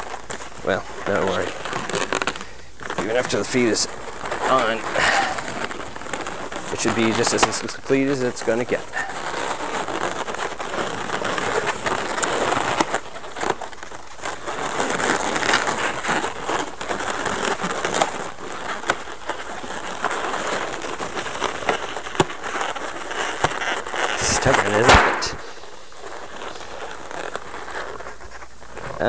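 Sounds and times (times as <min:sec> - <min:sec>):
balloons squeaking and rubbing: 0:00.0 - 0:29.0
sharp clicks: 0:24.4 - 0:25.4.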